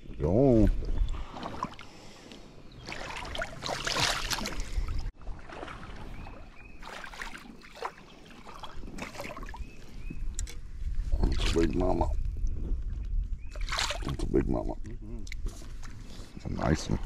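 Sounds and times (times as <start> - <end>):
river water splashing around legs: 1.2 - 2.0, 2.8 - 9.8, 13.5 - 14.2.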